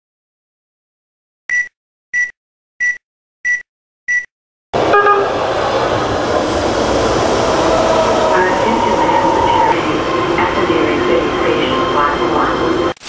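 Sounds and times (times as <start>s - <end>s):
short high-pitched beeps: 1.5s - 4.3s
subway train rushing: 4.8s - 13.0s.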